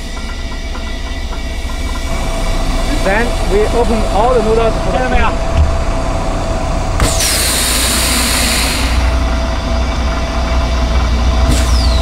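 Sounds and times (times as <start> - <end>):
truck engine running: 0.0 - 12.0
compressed air hissing: 7.0 - 9.4.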